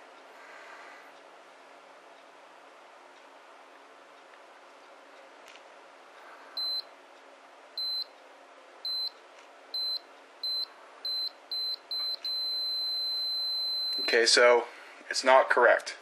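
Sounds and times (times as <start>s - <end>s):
short high beeps: 6.6s - 6.8s, 7.8s - 8.1s, 8.9s - 9.1s, 9.8s - 14.2s.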